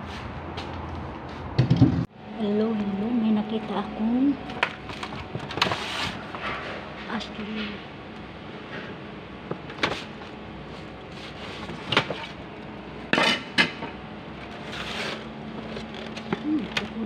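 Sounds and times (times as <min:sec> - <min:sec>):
hard plastic knocking and clattering: 0:01.6 - 0:02.0.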